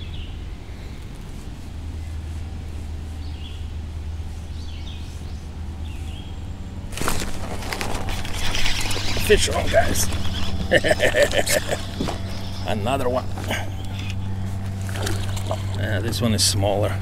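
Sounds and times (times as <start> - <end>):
fishing rod and reel rustling: 6.9 - 16.5
bird chirps: 8.1 - 15.8.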